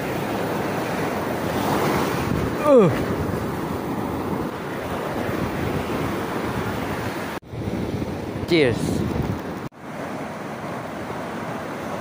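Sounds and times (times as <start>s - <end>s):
surf washing over sand: 0.0s - 12.0s
wind buffeting microphone: 1.1s - 9.7s.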